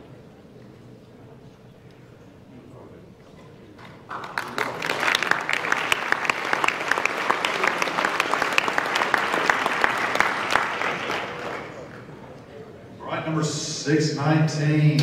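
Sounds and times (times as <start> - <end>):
audience applauding: 4.0 - 12.1.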